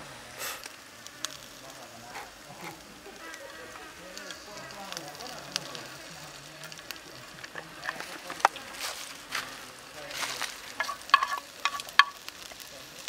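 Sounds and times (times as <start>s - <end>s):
oil sizzling in a pan: 0.0s - 13.0s
wood fire crackling: 0.0s - 13.0s
spitting oil pops: 0.4s - 13.0s.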